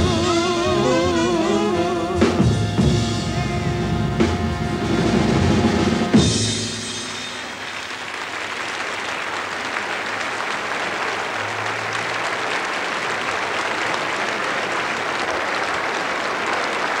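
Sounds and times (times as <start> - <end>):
audience applauding: 0.0 - 2.5, 6.2 - 17.0.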